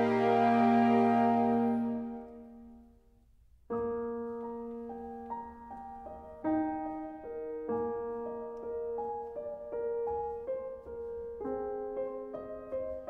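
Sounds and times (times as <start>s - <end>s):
slow melody of held notes: 0.0s - 2.8s.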